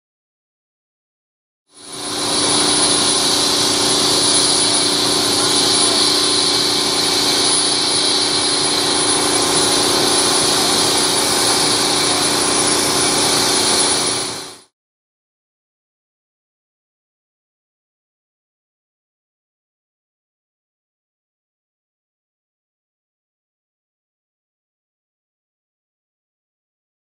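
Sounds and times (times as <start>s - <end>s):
loud mechanical drone: 1.8s - 14.7s.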